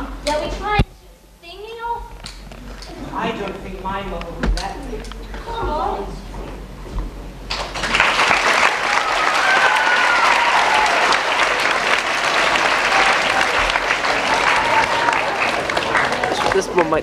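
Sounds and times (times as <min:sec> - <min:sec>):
voice: 0:02.8 - 0:06.4, 0:16.3 - 0:17.0
audience applauding: 0:07.5 - 0:17.0.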